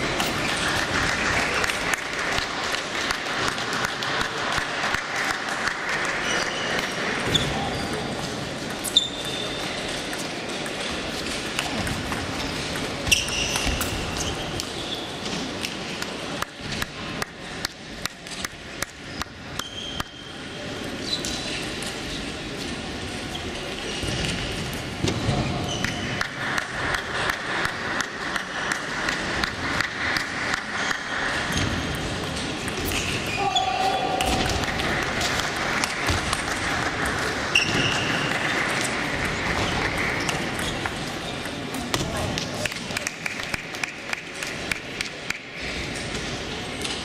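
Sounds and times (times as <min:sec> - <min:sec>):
shoes squeaking on floor: 0:06.2 - 0:08.0, 0:08.8 - 0:09.8, 0:12.4 - 0:15.2, 0:19.6 - 0:21.7, 0:37.5 - 0:38.6
ball bouncing: 0:06.4 - 0:14.8, 0:34.1 - 0:45.1.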